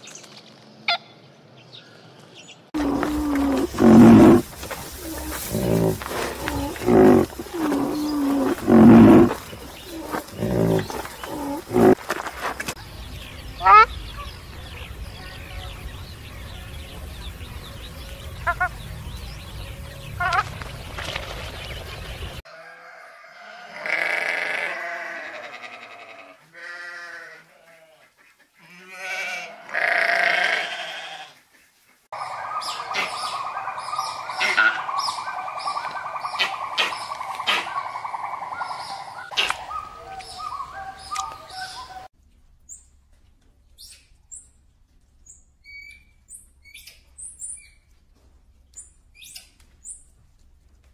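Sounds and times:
birds chirping: 0:00.0 - 0:22.4, 0:32.2 - 0:42.1
livestock bleating: 0:02.8 - 0:04.4, 0:05.0 - 0:12.0, 0:22.5 - 0:31.4
large animal deep calls: 0:02.8 - 0:12.0.

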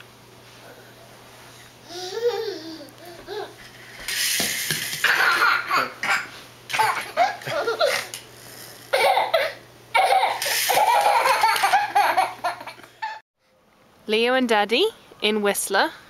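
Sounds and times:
baby laughing: 0:05.0 - 0:08.1, 0:08.9 - 0:13.2.

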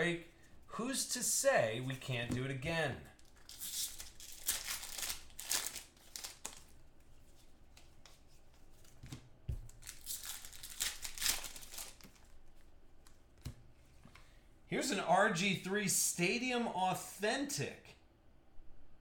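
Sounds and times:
card pack wrappers crinkling: 0:03.2 - 0:06.9, 0:09.6 - 0:13.2.

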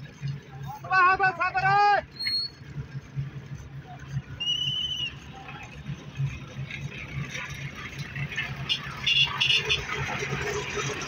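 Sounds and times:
diesel engine running: 0:02.5 - 0:11.0.

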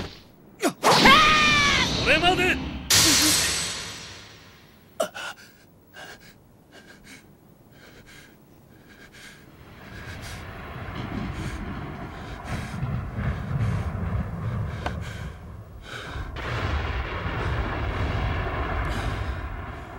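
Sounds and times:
low rumble: 0:09.5 - 0:19.9.

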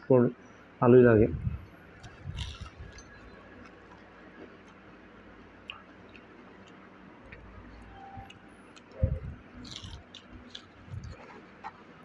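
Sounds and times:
crunch of fried coating: 0:02.0 - 0:04.8, 0:09.6 - 0:12.0.

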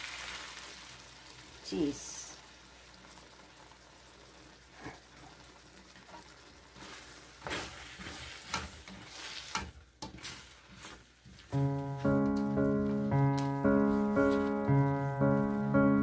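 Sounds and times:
onions sizzling in a wok: 0:00.0 - 0:16.0
spatula scraping and knocking wok: 0:06.0 - 0:11.5.

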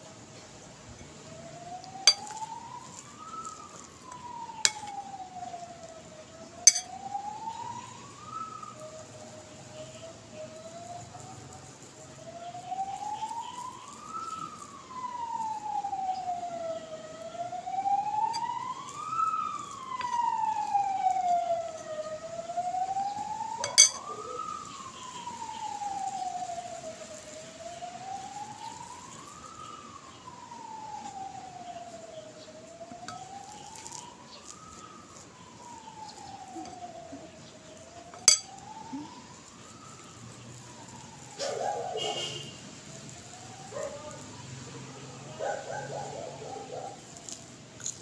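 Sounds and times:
siren wailing up and down: 0:00.0 - 0:48.0
sharp clink: 0:23.6 - 0:24.0.

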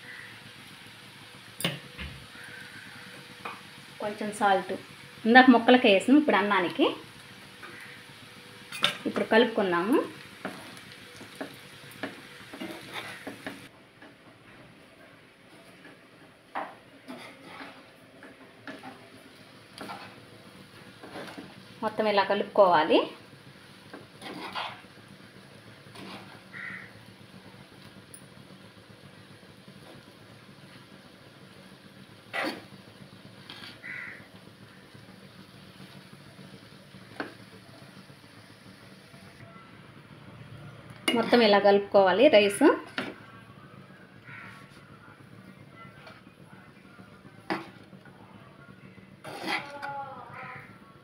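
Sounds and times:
crow cawing: 0:00.0 - 0:00.4, 0:02.2 - 0:03.2, 0:07.6 - 0:08.1, 0:26.5 - 0:27.0, 0:33.7 - 0:34.3, 0:44.2 - 0:44.6
steady low hum: 0:00.0 - 0:51.0
spatula scraping frying pan: 0:10.4 - 0:13.7, 0:17.0 - 0:21.7, 0:23.9 - 0:25.0, 0:25.8 - 0:26.9, 0:32.3 - 0:32.7, 0:33.4 - 0:34.2, 0:41.0 - 0:41.5, 0:49.2 - 0:49.9.

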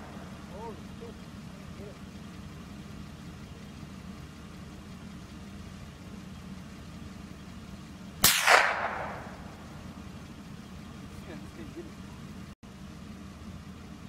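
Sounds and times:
steady low hum: 0:00.0 - 0:14.0
rifle shot echoing: 0:08.2 - 0:09.9.

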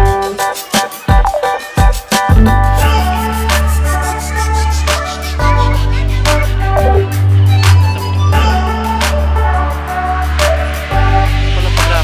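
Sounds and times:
deep bass notes: 0:02.3 - 0:03.1, 0:06.6 - 0:07.3
melody: 0:02.3 - 0:03.1, 0:06.8 - 0:07.1.

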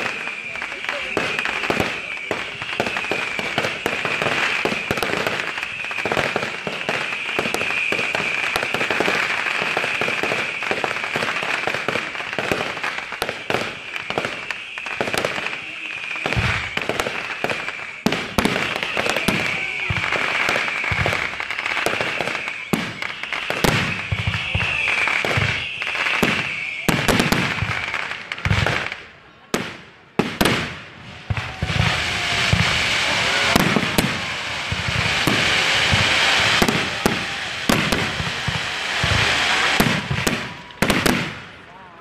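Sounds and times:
high-pitched fireworks hiss: 0:00.0 - 0:41.7
fireworks crackling and popping: 0:00.0 - 0:42.0
deep fireworks thumps: 0:30.2 - 0:41.5.

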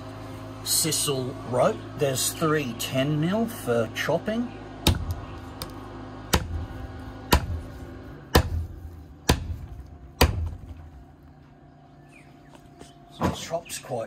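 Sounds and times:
blade chopping rope into wood: 0:04.8 - 0:11.0.

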